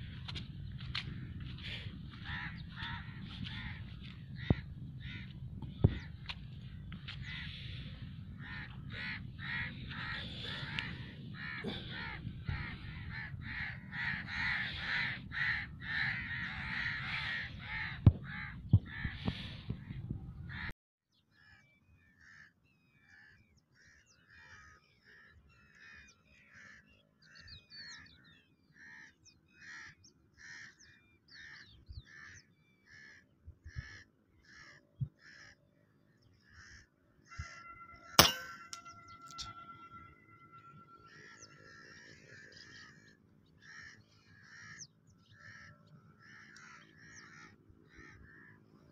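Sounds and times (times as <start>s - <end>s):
flock of birds calling: 0.0s - 19.9s, 22.2s - 35.6s, 36.3s - 48.9s
low wind rumble: 0.0s - 20.7s
bird calls repeated evenly: 21.2s - 48.9s.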